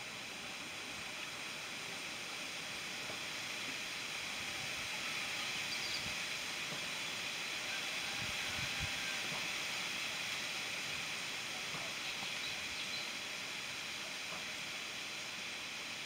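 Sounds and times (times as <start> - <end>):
steady outdoor hiss: 0.0 - 16.0.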